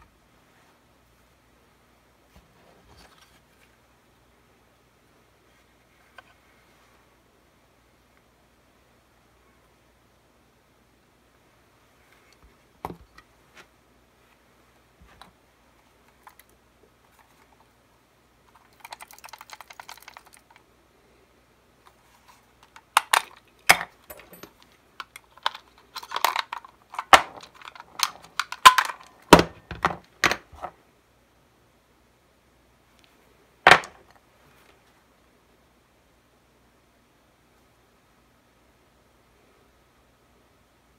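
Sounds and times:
plastic and metal clicks: 22.6s - 30.4s.

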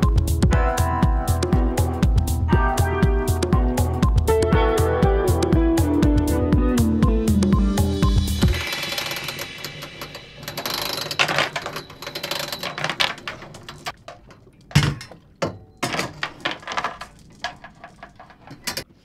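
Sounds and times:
anchor chain rattling: 8.6s - 18.9s.

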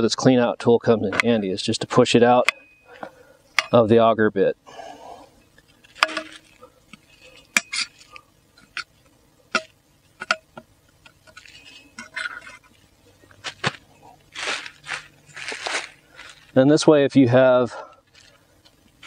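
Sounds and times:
metal tool clinking and scraping: 2.4s - 3.8s, 5.6s - 12.8s.

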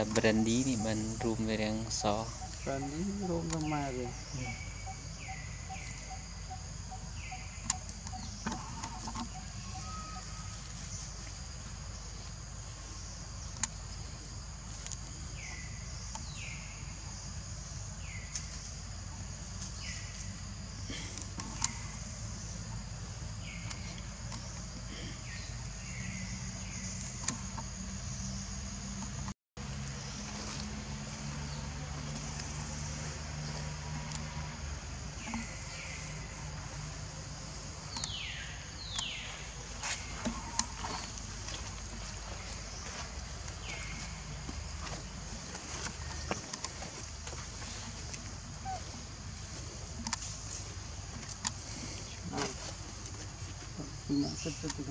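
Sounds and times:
insects droning: 0.0s - 54.9s
sharp clicks: 37.9s - 38.2s.

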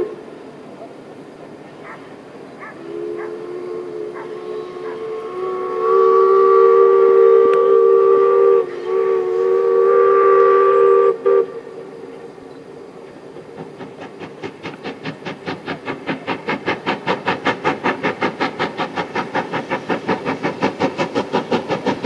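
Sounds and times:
steam locomotive whistle blast: 0.0s - 0.3s, 2.8s - 12.0s.

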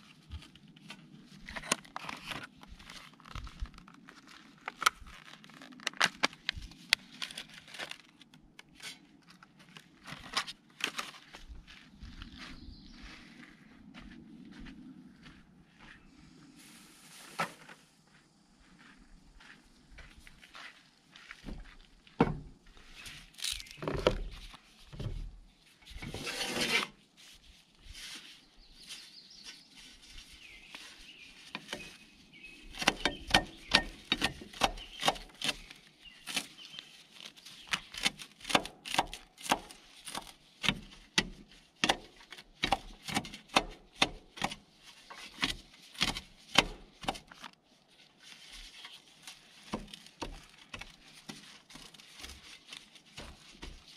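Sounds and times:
vegetables rustling: 0.0s - 12.2s, 22.8s - 43.5s, 44.8s - 53.9s.

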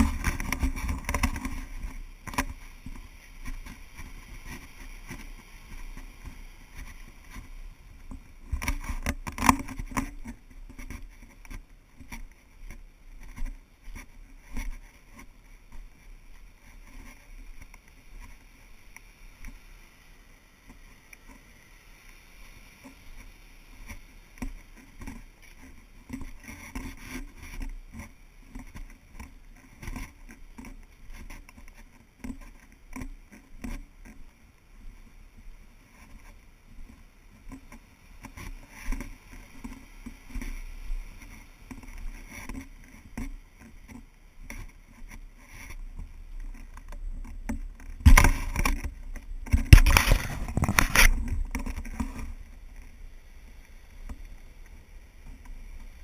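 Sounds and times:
camera case rubbing and knocking: 0.0s - 18.4s, 23.9s - 34.2s, 41.2s - 53.0s
footsteps on dirt trail: 0.0s - 19.6s, 37.8s - 53.0s.

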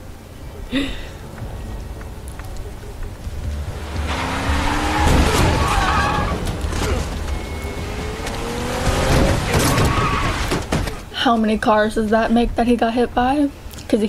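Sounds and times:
film music: 0.0s - 9.9s
car engine revving: 1.5s - 11.0s
tyres squealing: 2.0s - 11.1s.

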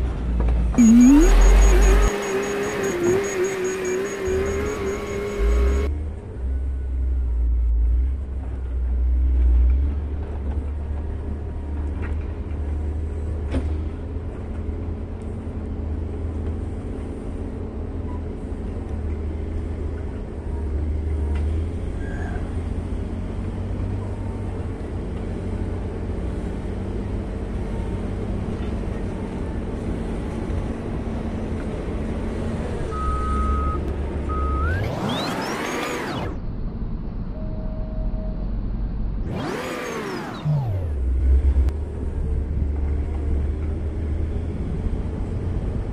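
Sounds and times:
diesel engine low rumble: 0.0s - 45.9s.

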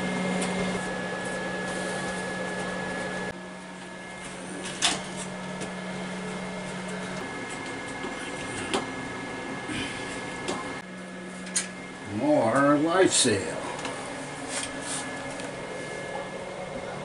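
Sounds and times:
machine hum: 0.0s - 17.0s
thin high whine: 0.0s - 17.0s.

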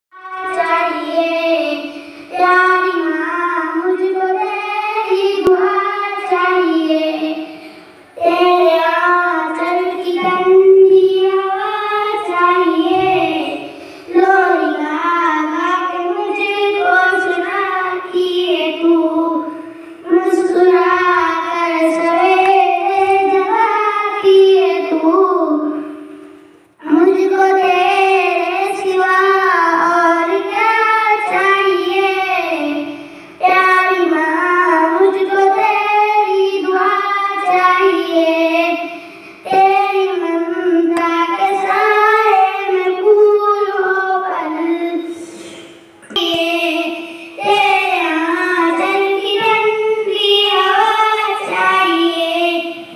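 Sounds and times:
girl singing into microphone: 0.1s - 52.9s.

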